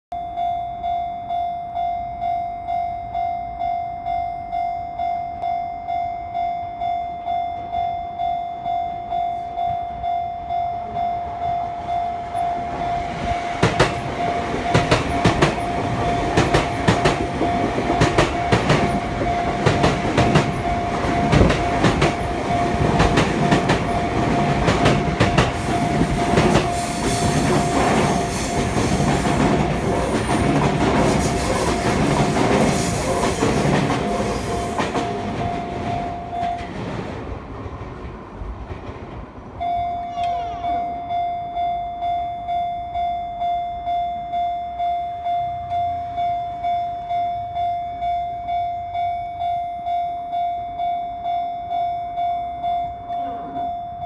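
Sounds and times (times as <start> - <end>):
train wheels clattering: 13.5 - 39.5
level crossing bell dinging: 39.6 - 54.0.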